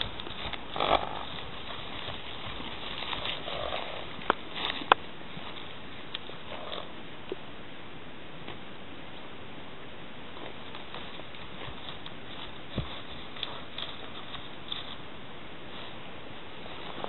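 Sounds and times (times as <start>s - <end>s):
hoof thuds on grass: 0.0s - 6.6s, 10.3s - 15.1s.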